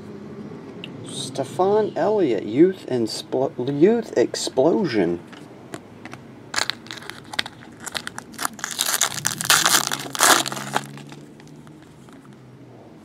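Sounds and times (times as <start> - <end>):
foil wrapper tearing and crinkling: 6.5 - 12.2.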